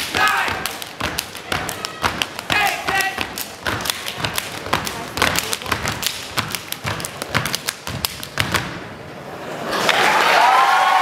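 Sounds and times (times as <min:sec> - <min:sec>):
hand claps and body slaps: 0:00.0 - 0:08.8
audience noise: 0:00.0 - 0:11.0.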